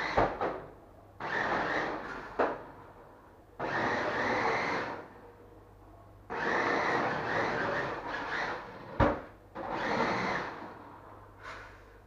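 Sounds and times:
toy car electric motor whirring: 1.2s - 2.2s, 3.6s - 5.0s, 6.3s - 8.8s, 9.6s - 10.6s.

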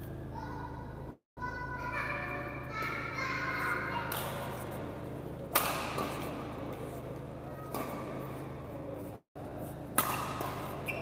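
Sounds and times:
low hum of hall: 0.0s - 11.0s
racket hitting shuttlecock: 4.0s - 11.0s.

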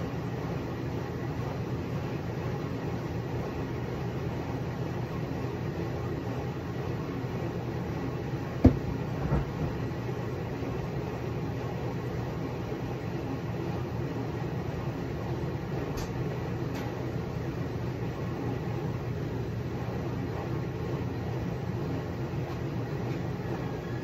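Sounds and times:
low mechanical hum and rumble: 0.0s - 24.0s
soft thumps: 8.6s - 9.8s.

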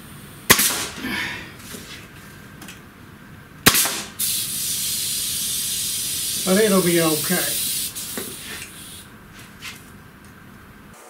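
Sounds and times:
nail gun firing: 0.5s - 1.0s, 3.6s - 4.5s
air hissing: 3.6s - 9.8s.

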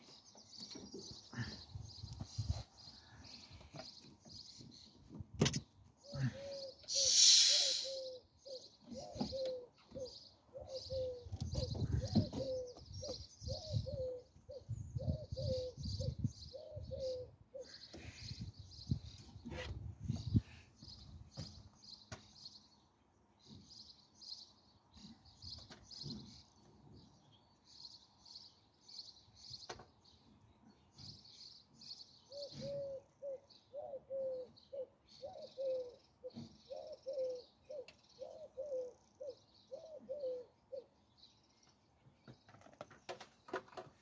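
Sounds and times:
faint birds chirping: 0.0s - 44.0s
lower-pitched bird calls: 5.4s - 21.6s, 32.2s - 41.0s.

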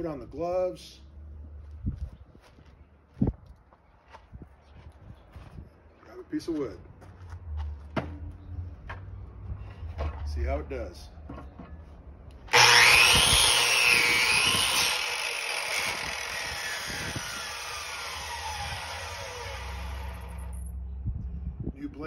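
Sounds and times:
chop saw cutting wood: 12.5s - 20.6s
saw motor whine: 12.5s - 20.6s.

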